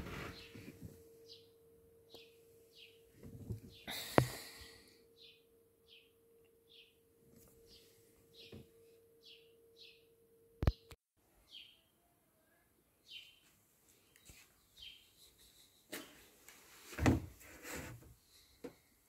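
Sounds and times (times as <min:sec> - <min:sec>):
faint steady tone: 0:00.5 - 0:10.6
small birds chirping: 0:07.6 - 0:08.6, 0:09.2 - 0:12.0, 0:13.0 - 0:16.3.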